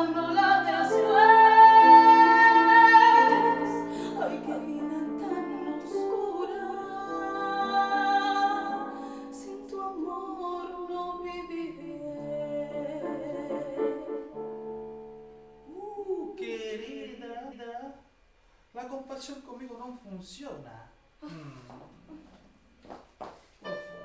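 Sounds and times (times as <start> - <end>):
musical accompaniment chords: 0.0 - 10.0, 23.6 - 24.0
woman singing operatically: 0.0 - 14.1.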